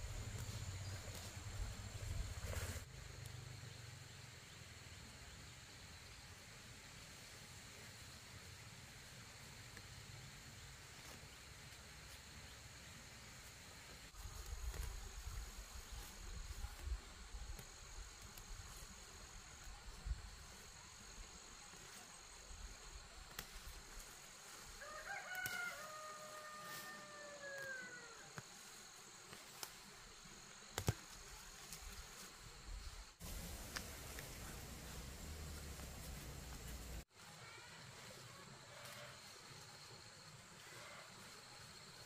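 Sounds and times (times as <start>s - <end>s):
rooster crowing: 24.8s - 28.3s.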